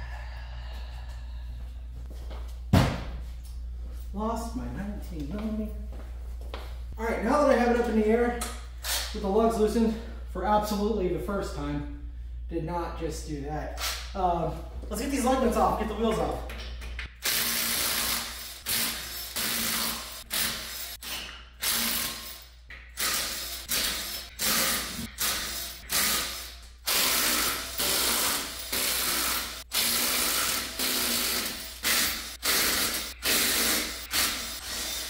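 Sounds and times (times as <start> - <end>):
impact wrench bursts: 17.2 - 35.0.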